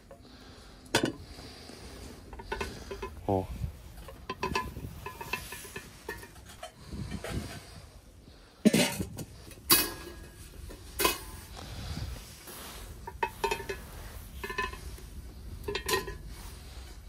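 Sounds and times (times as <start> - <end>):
grill lid clanking: 4.0 - 7.6, 8.6 - 11.5, 13.0 - 15.0, 15.6 - 16.3.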